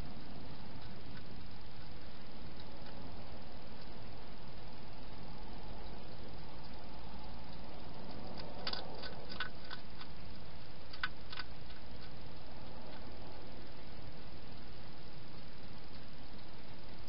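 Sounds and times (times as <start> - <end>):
background hiss: 0.0 - 17.0
hedgehog crunching food: 4.6 - 14.0.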